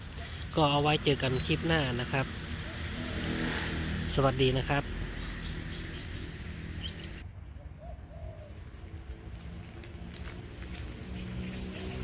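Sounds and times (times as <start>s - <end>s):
steady low hum: 0.0s - 7.6s
dove cooing: 6.8s - 8.8s.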